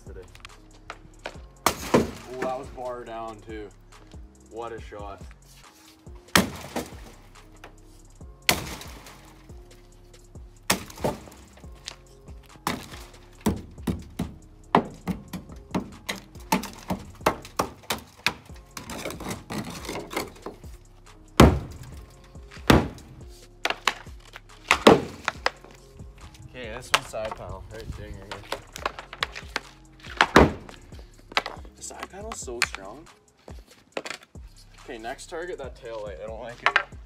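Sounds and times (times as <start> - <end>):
faint background music: 0.0 - 37.0
pucks hitting car body panels: 1.0 - 2.6, 6.4 - 7.7, 8.5 - 9.3, 10.7 - 11.9, 12.6 - 20.6, 21.4 - 25.8, 28.2 - 32.9
hockey stick striking pucks: 23.6 - 25.7, 28.2 - 31.7.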